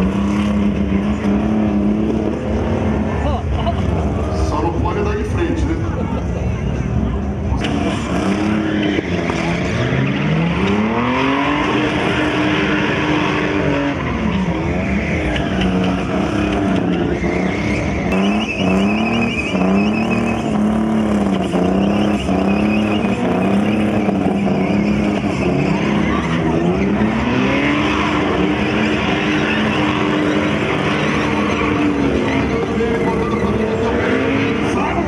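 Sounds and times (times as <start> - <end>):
car engines revving: 0.0 - 35.0
tyres screeching: 7.6 - 35.0.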